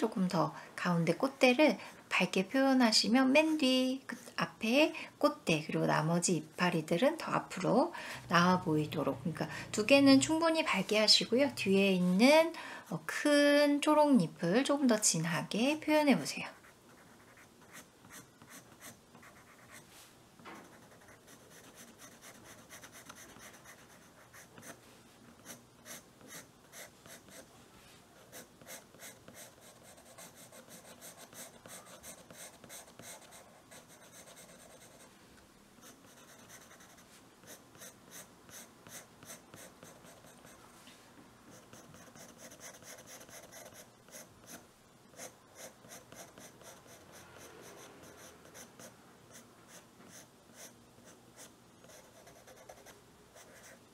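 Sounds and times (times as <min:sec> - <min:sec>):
pencil scratching on paper: 0:16.6 - 0:19.9, 0:20.6 - 0:24.8, 0:25.4 - 0:27.5, 0:28.3 - 0:35.1, 0:35.8 - 0:40.6, 0:41.5 - 0:44.6, 0:45.2 - 0:53.8.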